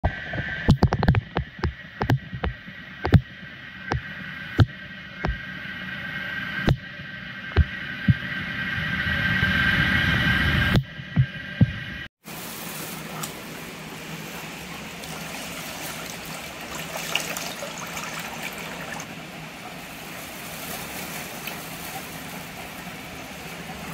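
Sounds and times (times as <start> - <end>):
steady mechanical hum: 0.0 - 23.9
sharp knocks and taps: 0.7 - 3.2.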